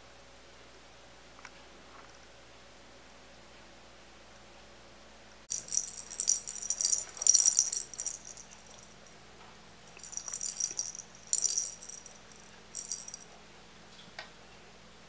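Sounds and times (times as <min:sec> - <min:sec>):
small bell jingling: 0:05.5 - 0:09.2, 0:09.9 - 0:13.3.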